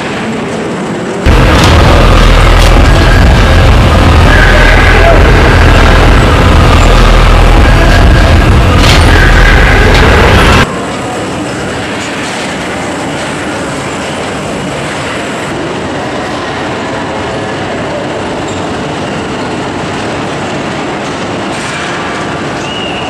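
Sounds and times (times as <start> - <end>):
crowded hall din: 0.0 - 23.0
roller coaster cars on track: 0.0 - 23.0.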